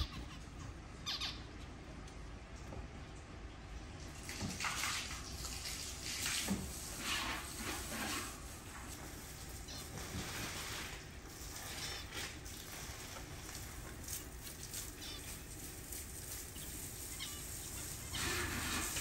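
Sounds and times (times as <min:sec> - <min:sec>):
small birds calling: 0:00.0 - 0:04.1, 0:09.5 - 0:10.0, 0:11.4 - 0:12.6, 0:14.0 - 0:19.0.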